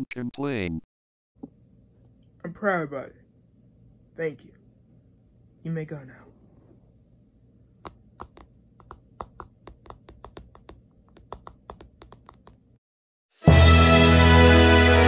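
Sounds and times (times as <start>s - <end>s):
keyboard key clicks: 7.8s - 12.6s
loud background music: 13.5s - 15.0s.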